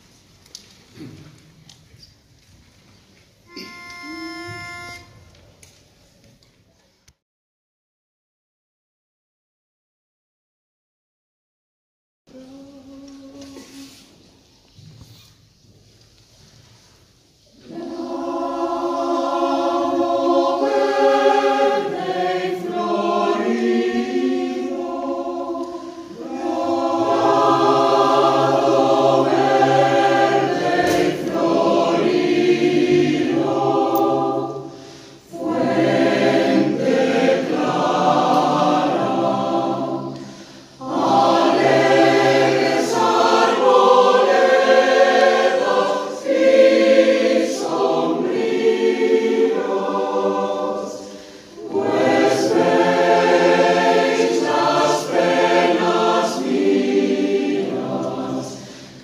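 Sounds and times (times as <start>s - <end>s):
mixed choir singing: 3.5s - 5.2s, 17.5s - 59.0s.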